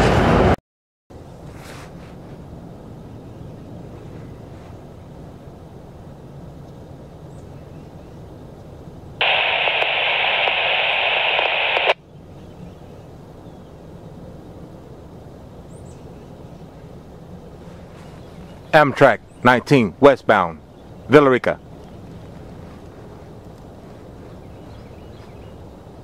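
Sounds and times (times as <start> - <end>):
radio static hiss: 9.2 - 12.0, 18.7 - 21.6.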